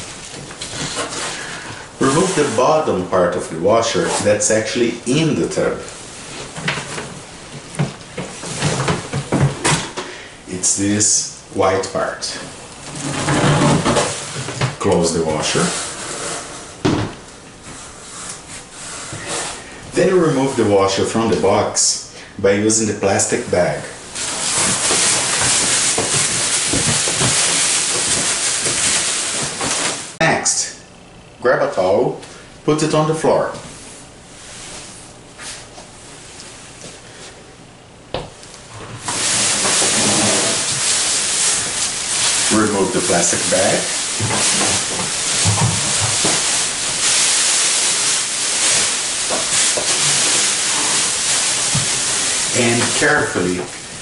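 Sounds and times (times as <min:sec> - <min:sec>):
steady hiss: 0:00.0 - 0:30.9, 0:38.9 - 0:54.0
plastic bag crinkling and rustling: 0:24.2 - 0:30.2, 0:39.0 - 0:53.8.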